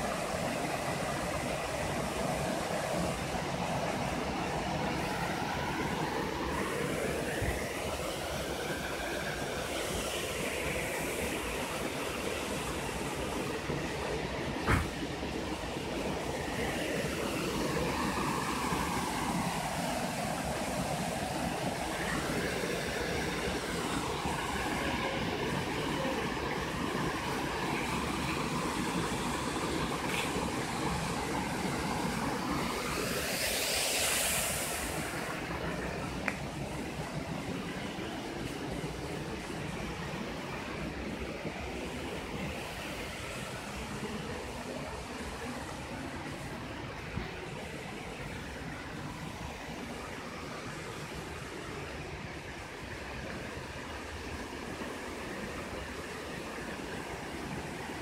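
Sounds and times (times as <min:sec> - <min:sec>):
waterfall rushing roar: 0:00.0 - 0:58.0
waterfall pouring into pool: 0:17.0 - 0:38.0.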